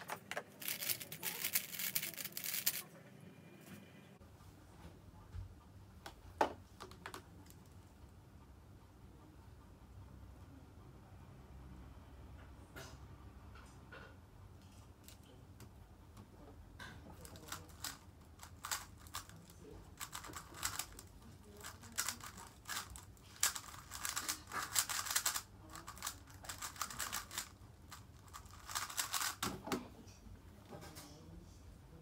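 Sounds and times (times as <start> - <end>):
puzzle cube plastic clicks: 0.0 - 2.8, 17.2 - 19.4, 20.0 - 29.5.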